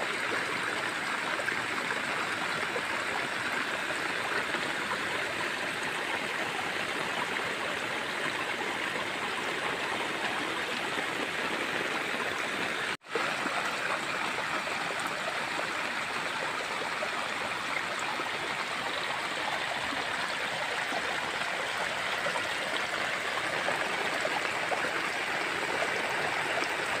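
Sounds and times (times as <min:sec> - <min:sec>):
rainwater rushing along channel: 0:19.2 - 0:27.0.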